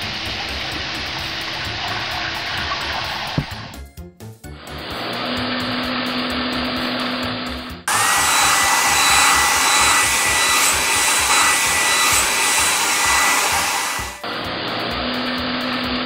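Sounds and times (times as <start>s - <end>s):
electric whirring with hum: 4.7s - 14.6s
hissing blast with rising whine: 7.9s - 14.6s.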